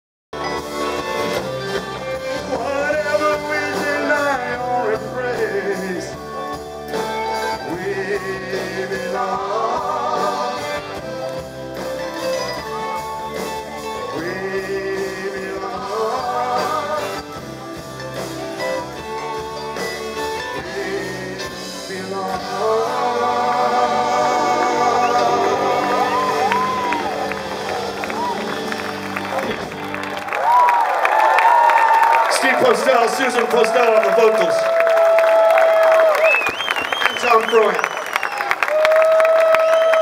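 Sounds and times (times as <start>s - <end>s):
live band playing: 0.4s - 40.0s
person singing: 2.4s - 6.3s, 7.3s - 11.1s, 13.9s - 17.5s, 19.0s - 28.3s.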